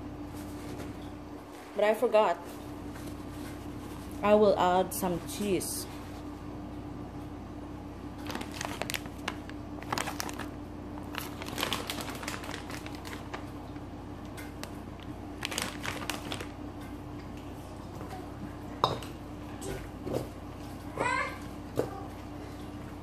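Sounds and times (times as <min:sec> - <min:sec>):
steady low hum: 0:00.0 - 0:23.0
plastic bag crinkling: 0:08.2 - 0:13.6, 0:14.6 - 0:16.6.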